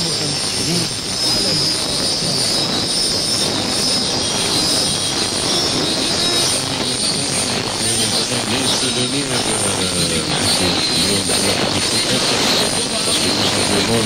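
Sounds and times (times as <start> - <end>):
dense rushing noise: 0.0 - 14.0
high whistle: 0.0 - 14.0.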